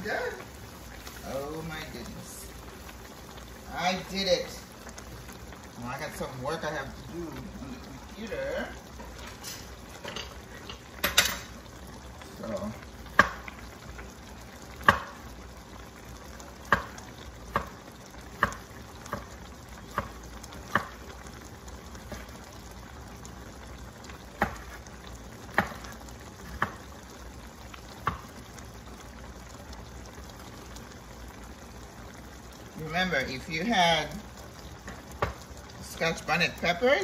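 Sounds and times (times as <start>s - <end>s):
stew bubbling in a pot: 0.0s - 37.0s
bubbles bursting with sharp pops: 12.9s - 15.3s, 16.4s - 21.3s.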